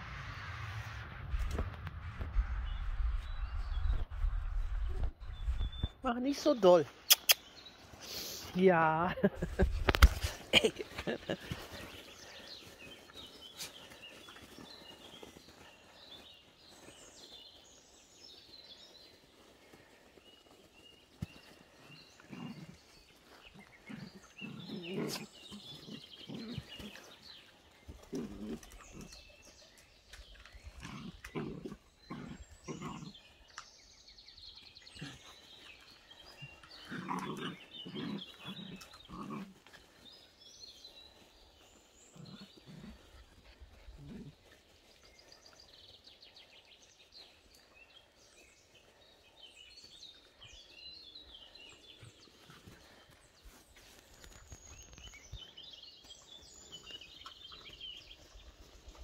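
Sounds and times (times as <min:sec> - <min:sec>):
puppies growling and grunting: 0:09.2 - 0:15.6, 0:21.6 - 0:29.5, 0:30.6 - 0:33.4, 0:34.9 - 0:40.3, 0:41.1 - 0:45.0.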